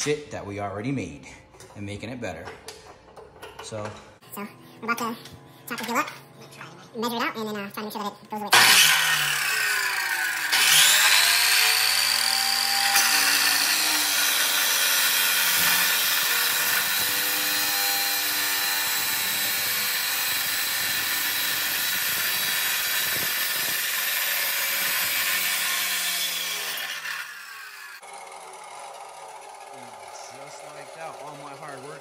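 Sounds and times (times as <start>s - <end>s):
chop saw cutting metal pipe: 8.5s - 28.1s.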